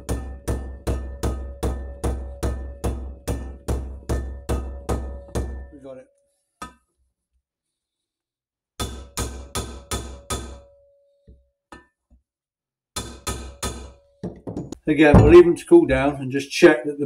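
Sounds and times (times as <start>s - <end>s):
mallet striking metal driver: 0.0s - 5.7s, 8.8s - 10.7s, 13.0s - 15.6s.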